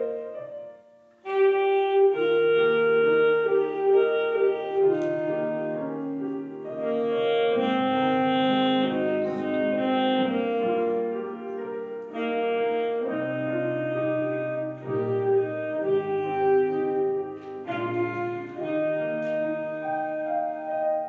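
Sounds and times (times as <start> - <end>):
clarinet-like melody: 0.0 - 21.0
piano accompaniment: 0.0 - 21.0.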